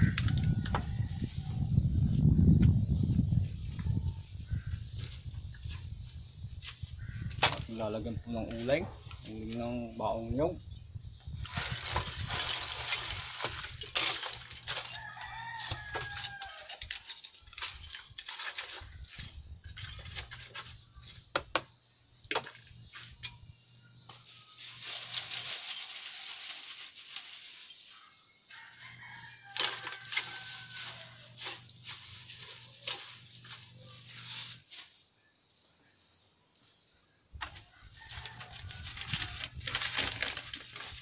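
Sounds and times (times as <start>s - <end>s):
charcoal clattering: 11.4s - 21.3s, 24.0s - 28.1s, 28.8s - 34.9s, 38.0s - 41.0s
rooster crowing: 14.8s - 16.9s, 28.5s - 31.4s, 37.5s - 39.5s.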